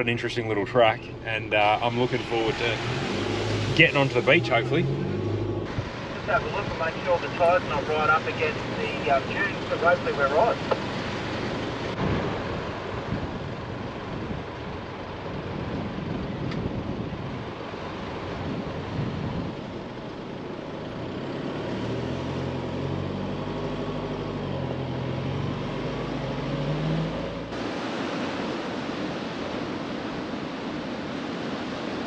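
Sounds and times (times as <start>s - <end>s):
engine labouring and revving: 0.0s - 29.6s
wind noise: 1.0s - 20.3s.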